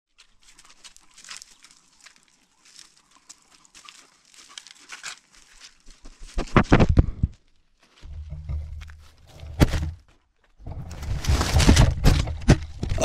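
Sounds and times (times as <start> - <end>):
dry leaves crackling and rustling: 0.1 - 6.5.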